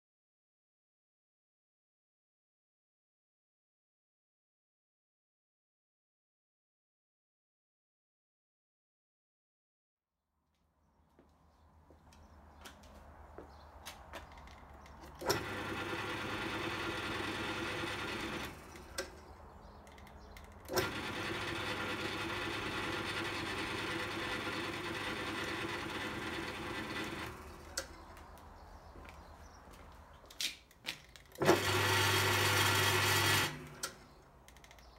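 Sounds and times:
lathe motor running: 15.1s - 19.3s, 20.7s - 28.0s, 31.4s - 34.0s.

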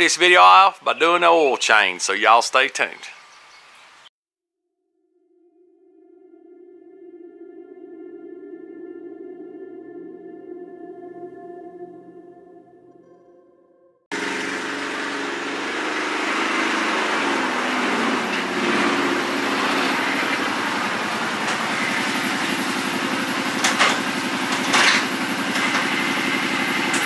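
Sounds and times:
engine running: 14.1s - 27.0s.

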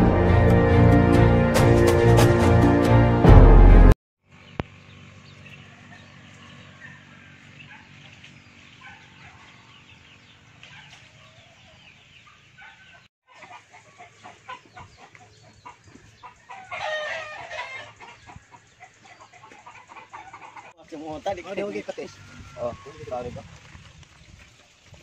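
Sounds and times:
chickens clucking softly: 10.6s - 20.8s
loud chicken call: 12.7s - 20.7s.

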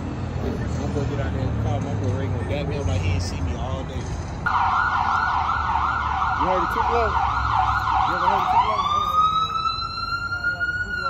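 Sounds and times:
siren yelping: 4.5s - 11.0s.

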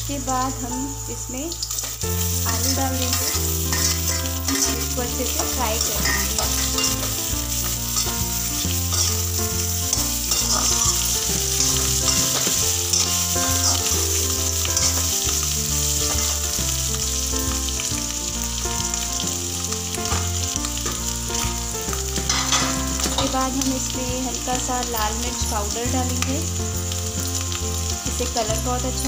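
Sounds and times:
potatoes sizzling in hot oil: 0.0s - 29.0s
steel spoon scraping pan: 1.8s - 15.4s.

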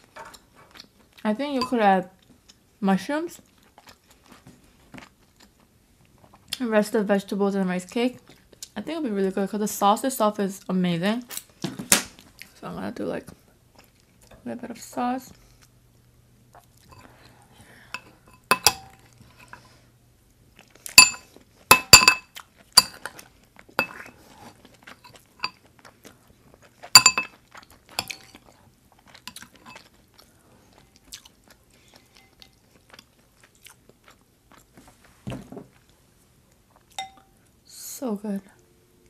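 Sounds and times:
spoon clinking ceramic bowl: 1.6s - 1.8s, 17.9s - 19.6s, 21.0s - 23.0s, 23.8s - 24.0s, 27.0s - 27.3s, 28.0s - 28.3s, 37.0s - 37.3s
chewing: 3.4s - 6.6s, 13.3s - 14.4s, 22.3s - 35.1s.

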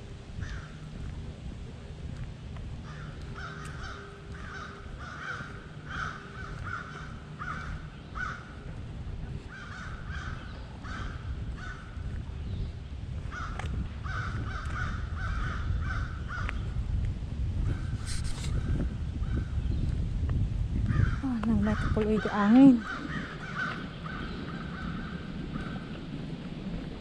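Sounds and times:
steady low rumble: 0.0s - 27.0s
bird calling: 2.8s - 8.7s, 21.1s - 26.0s.

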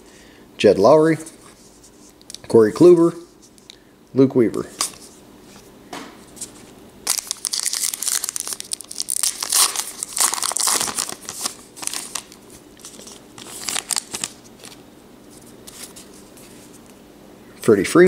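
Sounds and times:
foil wrapper crinkling: 7.0s - 14.8s.

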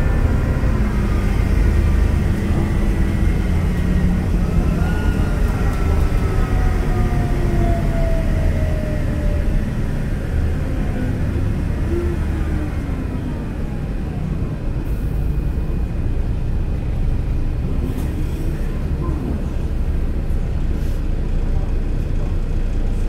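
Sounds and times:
drivetrain whine: 0.0s - 22.7s
bus engine rumble: 0.0s - 23.0s.

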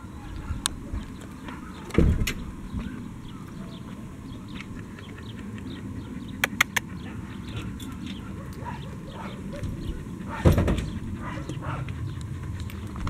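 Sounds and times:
dog panting: 2.8s - 13.0s
sharp clicks: 6.4s - 7.0s.

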